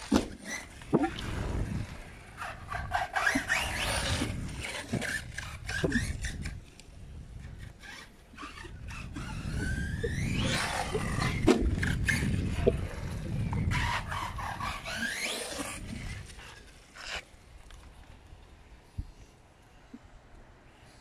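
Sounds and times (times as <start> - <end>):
electric motor whining: 7.8 - 16.3.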